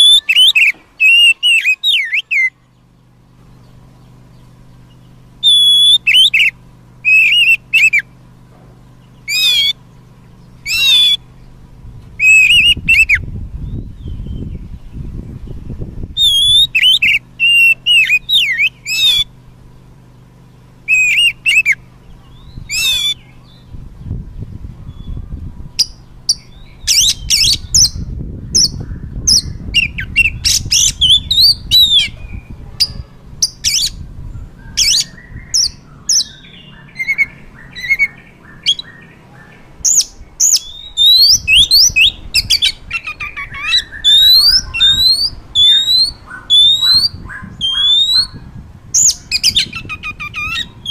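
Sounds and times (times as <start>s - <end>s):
bird singing whistles: 0.0s - 2.7s, 5.4s - 8.1s, 9.2s - 9.8s, 10.6s - 11.2s, 12.2s - 14.9s, 16.2s - 19.3s, 20.9s - 23.7s, 25.8s - 48.4s, 49.0s - 50.9s
harsh scratchy bird notes: 3.5s - 13.3s.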